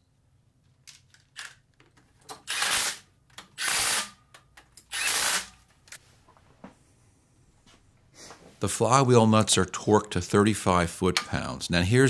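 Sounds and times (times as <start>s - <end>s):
impact driver bursts: 2.4s - 3.0s, 3.6s - 4.2s, 4.9s - 5.6s.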